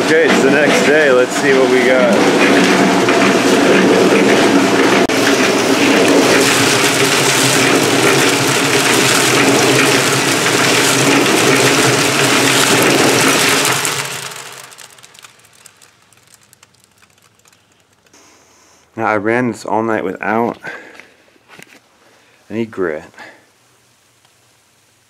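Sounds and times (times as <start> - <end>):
cement mixer churning slurry: 0.0 - 18.1
electric motor hum: 1.0 - 18.9.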